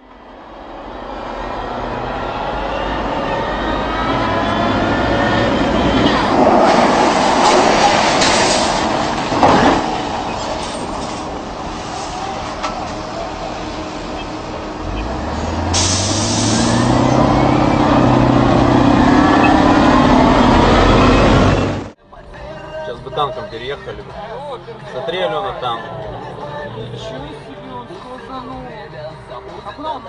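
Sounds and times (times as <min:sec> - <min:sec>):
tracked vehicles driving past: 0:00.0 - 0:22.0
engine revving up: 0:00.5 - 0:22.0.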